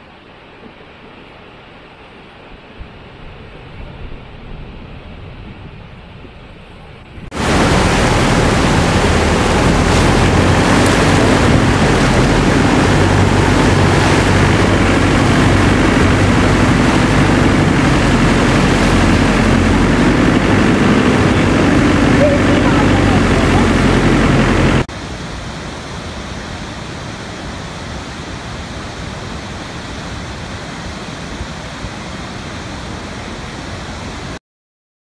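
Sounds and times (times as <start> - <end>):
waterfall rushing: 7.3 - 34.4.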